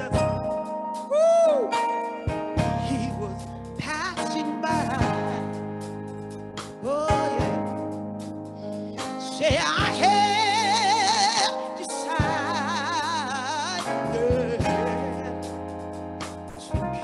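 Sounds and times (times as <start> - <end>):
bass guitar: 0.0 - 11.5, 12.1 - 17.0
keyboard chords: 0.0 - 17.0
woman singing gospel: 9.2 - 15.3.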